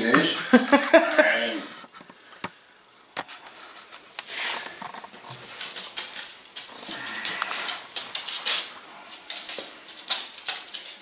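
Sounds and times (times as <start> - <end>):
dog claws clicking on wooden floor: 4.7 - 11.0.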